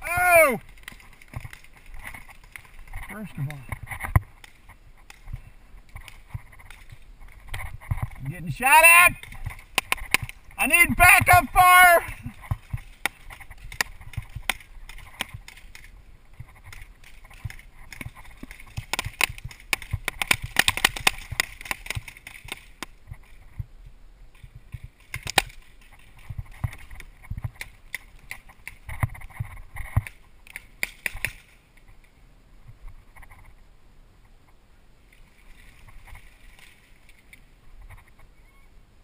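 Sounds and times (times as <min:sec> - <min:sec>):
paintball markers firing: 0:18.7 - 0:22.7.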